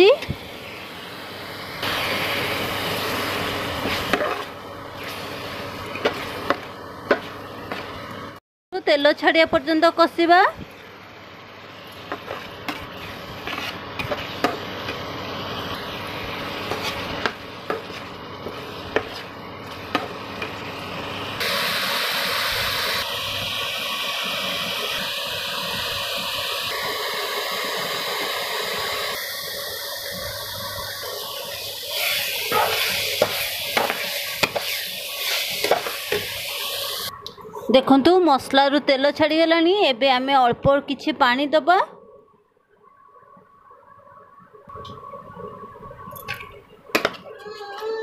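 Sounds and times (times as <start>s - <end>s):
food sizzling in oil: 0.0s - 8.4s, 9.2s - 37.1s
spatula scraping steel pan: 12.2s - 14.6s.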